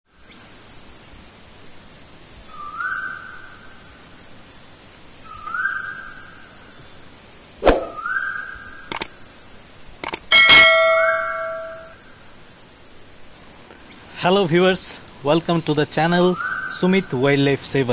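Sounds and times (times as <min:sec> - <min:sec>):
short rising whistle: 0:07.6 - 0:08.2
high insect chirring: 0:07.7 - 0:14.0
sharp clicks: 0:08.9 - 0:09.2, 0:10.0 - 0:10.3
bright bell ding: 0:10.3 - 0:12.0.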